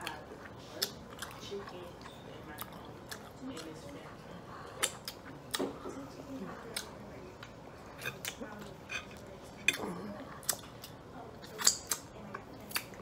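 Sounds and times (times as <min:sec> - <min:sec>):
wet lip smacks and chewing: 0:00.0 - 0:04.0, 0:04.7 - 0:05.8, 0:09.6 - 0:13.0.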